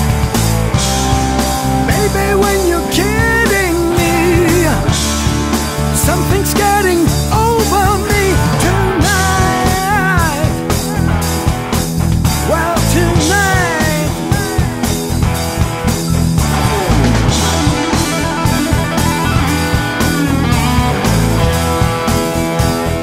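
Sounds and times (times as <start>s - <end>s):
rock band playing: 0.0s - 23.0s.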